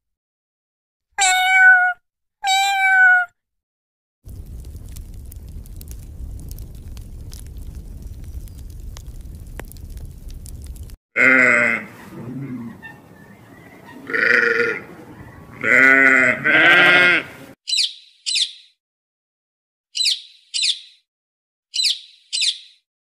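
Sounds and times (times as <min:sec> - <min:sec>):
sheep bleating: 0:11.2 - 0:12.9, 0:13.9 - 0:14.9, 0:15.5 - 0:17.5.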